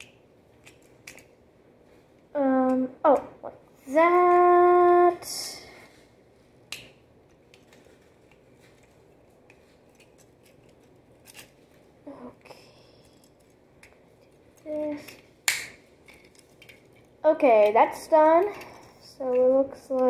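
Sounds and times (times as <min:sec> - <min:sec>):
quiet handling of toy: 0:07.3 - 0:15.3.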